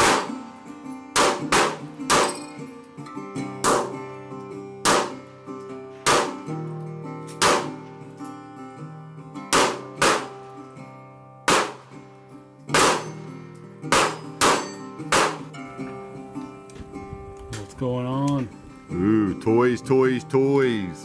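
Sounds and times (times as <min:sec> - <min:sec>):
pistol shots hitting steel targets: 0:00.0 - 0:00.5, 0:01.1 - 0:02.7, 0:03.6 - 0:04.1, 0:04.8 - 0:05.3, 0:06.0 - 0:06.6, 0:07.3 - 0:07.8, 0:09.5 - 0:10.5, 0:11.4 - 0:12.0, 0:12.7 - 0:15.6
background music: 0:00.0 - 0:21.0.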